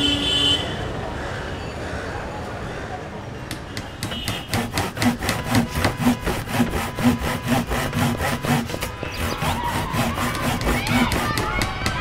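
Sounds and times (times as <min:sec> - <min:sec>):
hand saw cutting wood: 0:03.5 - 0:12.0.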